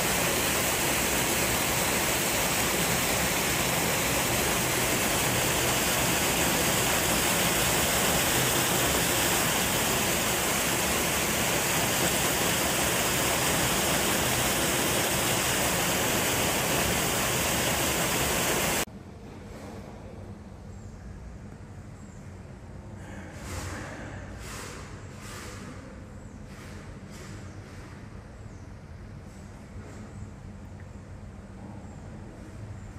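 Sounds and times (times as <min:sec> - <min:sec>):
water pouring into a pool: 0:00.0 - 0:18.9.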